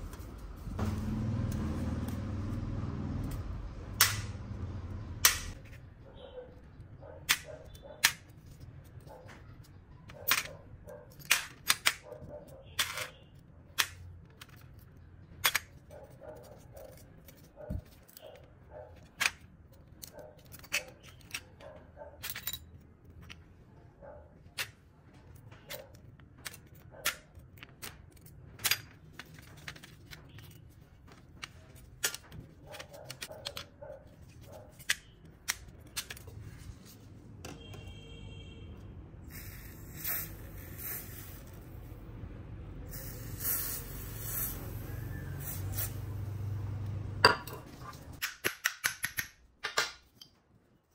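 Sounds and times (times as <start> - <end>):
metallic clicks and taps: 48.2 - 50.4.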